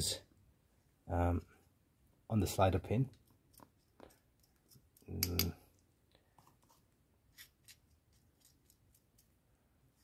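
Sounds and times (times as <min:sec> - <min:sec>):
brush scraping and clicking: 0:03.1 - 0:10.0.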